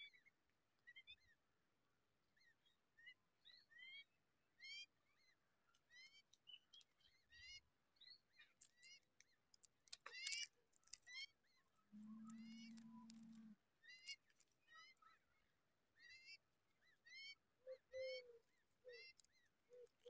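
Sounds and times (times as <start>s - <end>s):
nestling birds chirping: 6.0s - 14.6s.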